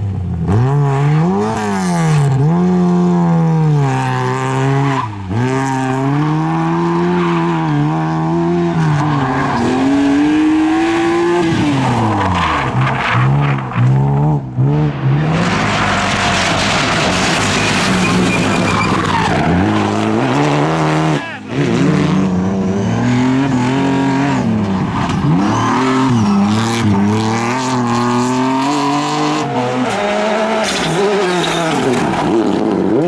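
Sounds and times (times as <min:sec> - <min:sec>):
rally car engines revving: 0:00.0 - 0:33.0
tyres squealing: 0:15.8 - 0:20.4.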